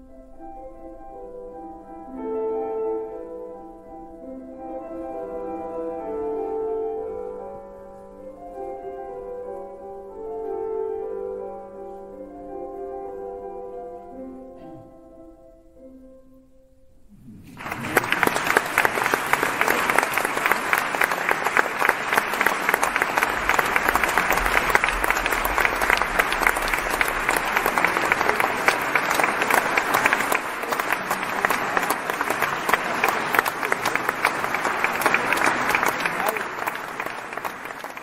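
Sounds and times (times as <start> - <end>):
audience applause: 17.4 - 38.0.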